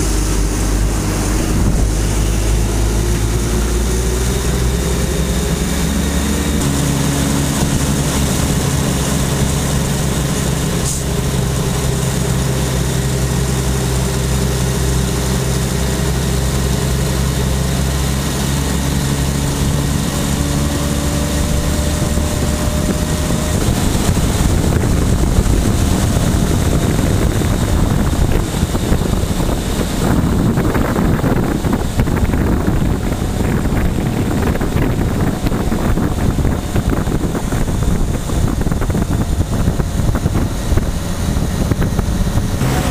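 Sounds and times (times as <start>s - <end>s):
road noise: 0.0s - 42.9s
rushing wind: 0.0s - 42.9s
vehicle engine drone: 0.0s - 42.9s.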